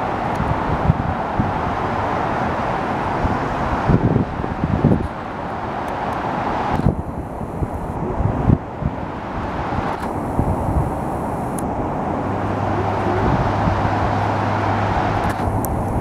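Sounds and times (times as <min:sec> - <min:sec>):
passing cars: 0:00.0 - 0:16.0
wind thumping on microphone: 0:00.1 - 0:02.0, 0:03.1 - 0:16.0
low steady hum: 0:06.8 - 0:16.0.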